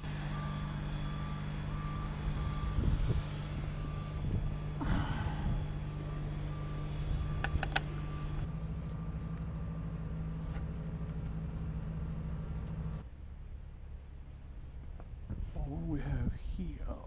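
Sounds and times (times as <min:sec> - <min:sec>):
vehicle engine running: 0:00.0 - 0:16.8.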